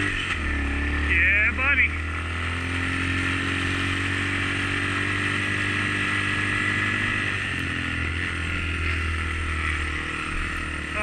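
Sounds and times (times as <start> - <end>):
dirt bike engine running: 0.0 - 11.0.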